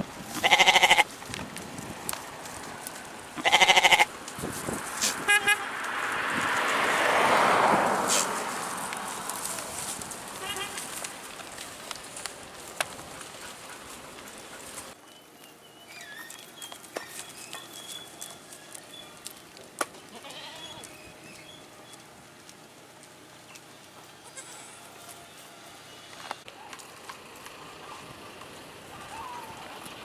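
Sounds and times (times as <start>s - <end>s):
goats rustling in dry leaves: 0.0s - 30.0s
goat bleats: 0.3s - 1.1s, 3.4s - 4.1s, 10.4s - 11.0s, 20.0s - 20.9s, 24.2s - 25.1s.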